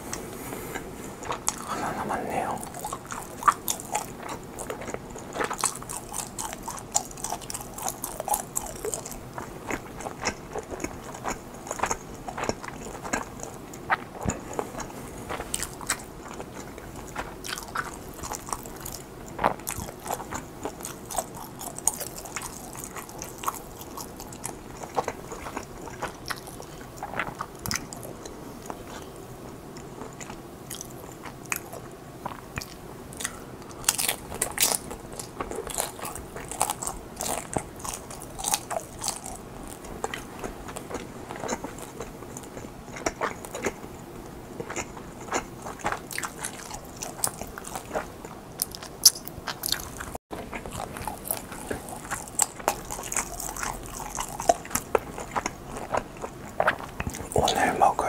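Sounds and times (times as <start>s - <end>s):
person chewing: 0.0s - 29.2s, 29.8s - 58.0s.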